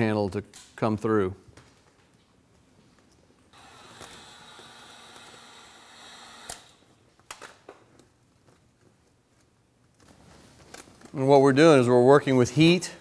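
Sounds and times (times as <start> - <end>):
heat gun blowing with whine: 3.6 - 6.8.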